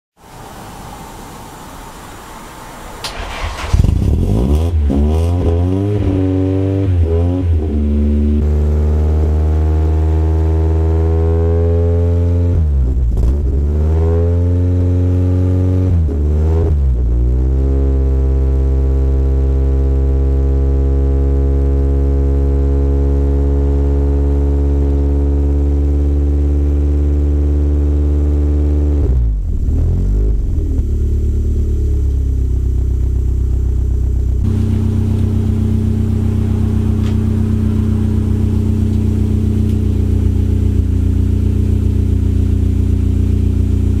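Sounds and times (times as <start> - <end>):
car engine idling: 0.3 - 9.2, 30.3 - 44.0.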